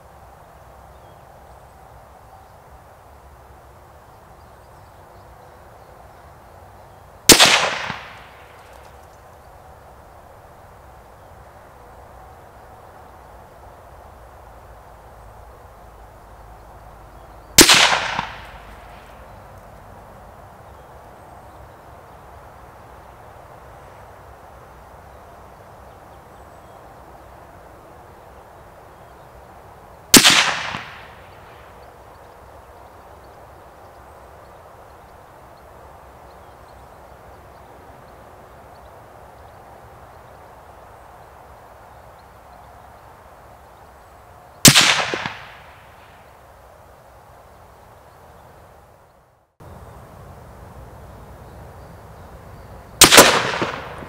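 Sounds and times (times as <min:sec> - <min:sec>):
rifle shots: 0:07.3 - 0:08.5, 0:17.6 - 0:18.8, 0:30.2 - 0:31.3, 0:44.7 - 0:45.8, 0:53.0 - 0:54.0.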